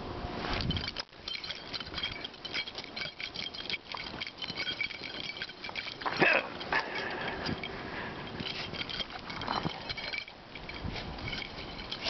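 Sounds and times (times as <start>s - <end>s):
light metallic jingle: 0.5s - 12.0s.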